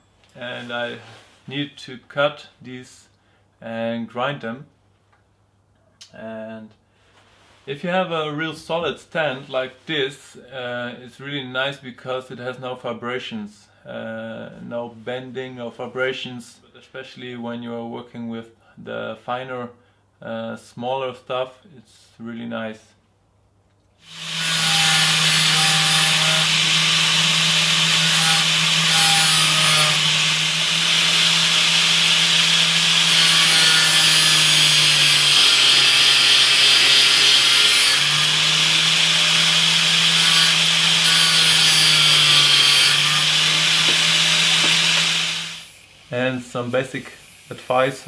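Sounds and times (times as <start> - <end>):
angle grinder motor hum: 24.0 - 46.1
harsh hiss of metal grinding: 24.0 - 48.0.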